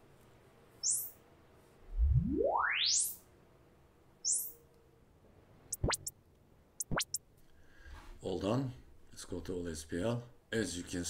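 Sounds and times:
short high rising chirp: 0:01.9 - 0:03.2, 0:05.7 - 0:06.1, 0:06.8 - 0:07.2
sine sweep from bass to treble: 0:01.9 - 0:03.2.

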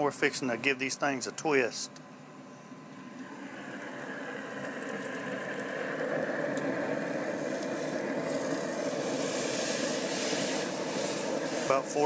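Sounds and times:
steady hum: 0:00.0 - 0:12.0
faint crackles: 0:03.1 - 0:12.0
steaks sizzling on grill: 0:04.1 - 0:12.0.

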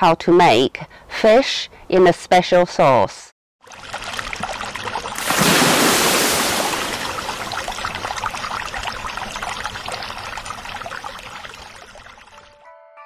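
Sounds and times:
water bubbling and trickling: 0:03.6 - 0:12.6
chillies splashing into water: 0:03.7 - 0:12.5.

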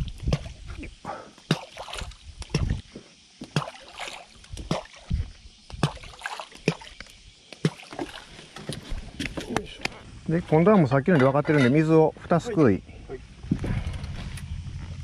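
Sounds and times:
water lapping against boat hull: 0:00.0 - 0:11.9.

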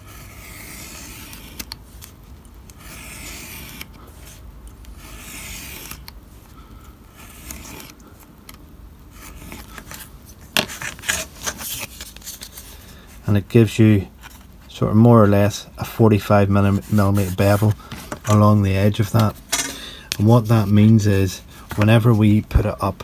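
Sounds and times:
knife scraping through card: 0:00.0 - 0:02.1, 0:02.7 - 0:06.1, 0:07.1 - 0:08.0, 0:09.1 - 0:12.8.

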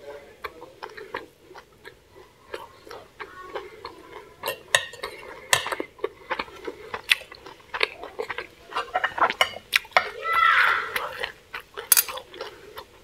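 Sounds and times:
fork clinking on a plate: 0:11.9 - 0:12.2.

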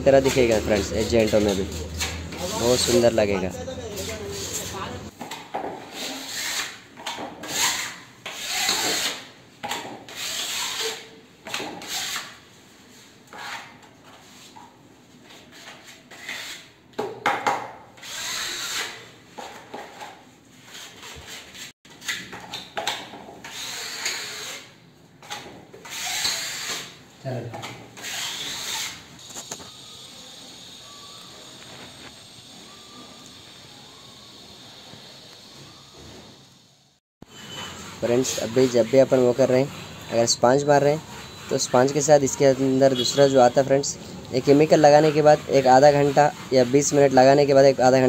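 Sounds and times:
hand tool scraping grout: 0:00.1 - 0:03.2.

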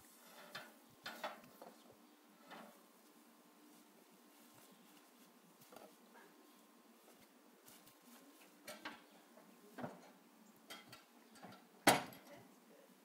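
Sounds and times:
light metal clicks and knocks: 0:08.6 - 0:09.1, 0:09.8 - 0:12.4.

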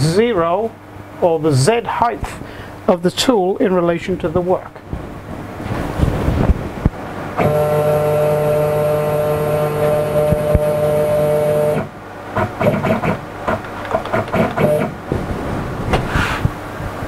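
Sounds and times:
stepper motor whine: 0:07.4 - 0:13.2, 0:14.1 - 0:15.0
short whirring motor jogs: 0:07.4 - 0:15.2.

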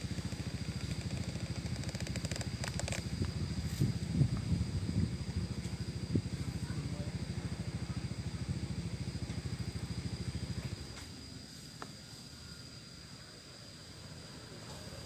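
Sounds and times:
small engine puttering: 0:00.0 - 0:11.2
faint high whine: 0:00.0 - 0:15.0
outdoor background: 0:00.0 - 0:15.0.

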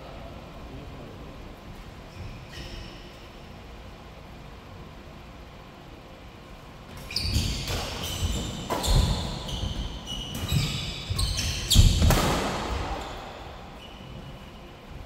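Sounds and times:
shoes squeaking on court: 0:02.1 - 0:03.3, 0:06.9 - 0:15.0
rackets hitting shuttlecock: 0:07.3 - 0:13.1.

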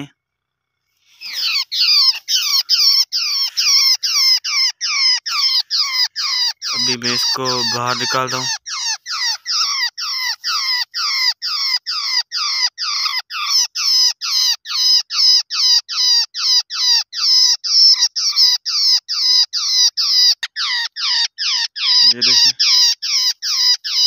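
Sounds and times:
bird distress squawks: 0:01.0 - 0:24.0.

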